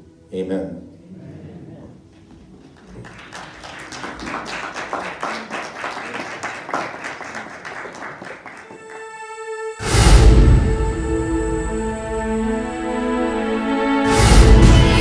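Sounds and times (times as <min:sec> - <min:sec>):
people clapping: 0:02.2 - 0:09.3
music with held notes: 0:08.0 - 0:15.0.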